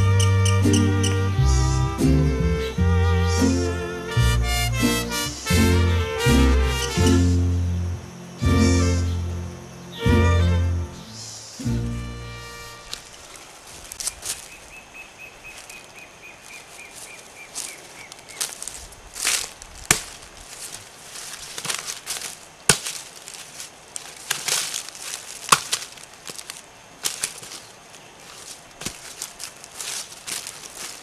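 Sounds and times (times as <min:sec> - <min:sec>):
machete chopping brush: 0:19.2 - 0:27.7, 0:28.4 - 0:31.0.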